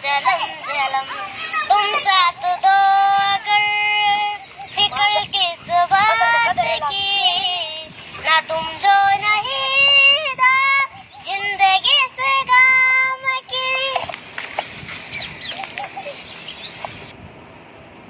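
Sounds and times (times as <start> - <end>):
boy singing unaccompanied: 0.0 - 14.1
faint background noise: 0.0 - 18.0.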